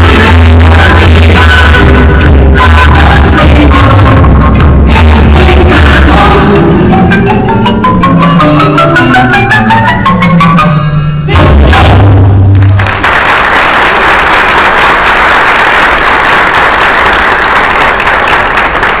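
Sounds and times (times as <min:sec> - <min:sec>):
marimba folk-dance music: 0:00.0 - 0:12.8
audience applause: 0:12.8 - 0:19.0.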